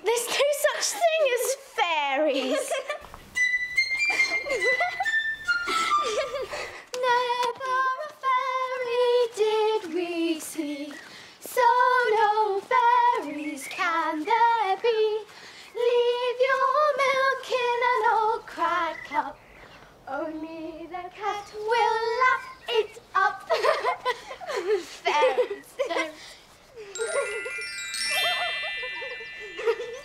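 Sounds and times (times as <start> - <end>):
girl singing: 6.9 - 19.4, 20.1 - 23.8.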